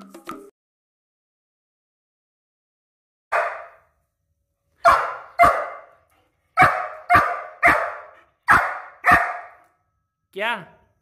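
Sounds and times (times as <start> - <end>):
dog barking: 3.3 - 3.9, 4.8 - 9.7.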